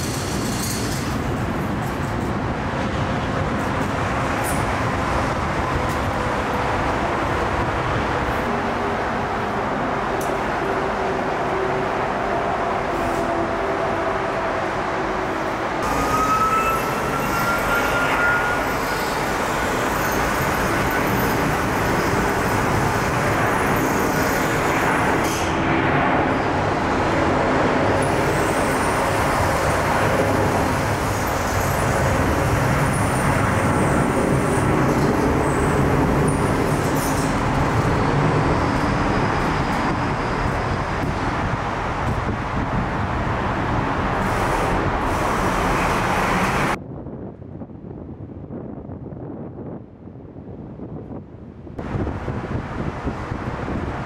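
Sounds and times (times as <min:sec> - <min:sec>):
loud jet roar: 0:21.6 - 0:31.3.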